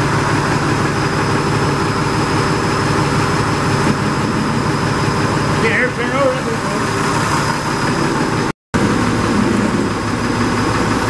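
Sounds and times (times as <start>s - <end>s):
tractor engine running: 0.0s - 11.0s.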